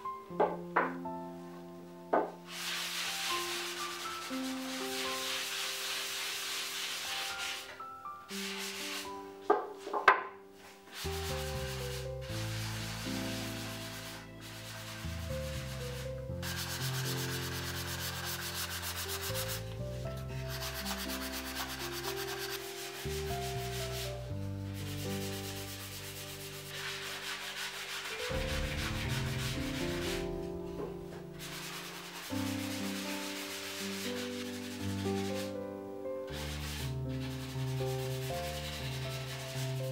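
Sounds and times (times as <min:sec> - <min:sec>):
soft background music: 0:00.0 - 0:39.9
hand pad rubbing wood: 0:10.9 - 0:19.8, 0:20.4 - 0:24.1, 0:24.8 - 0:30.4, 0:31.4 - 0:35.5, 0:36.3 - 0:39.8.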